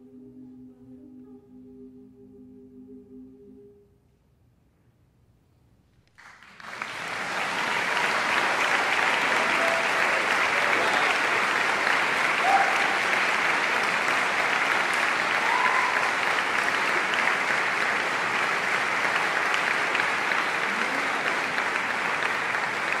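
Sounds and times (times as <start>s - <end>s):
audience applauding: 6.1s - 23.0s
audience cheering: 6.5s - 23.0s.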